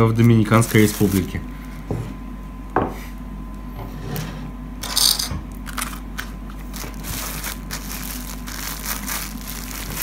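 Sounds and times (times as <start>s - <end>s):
plastic bag crinkling: 0.2s - 1.4s, 6.6s - 10.0s.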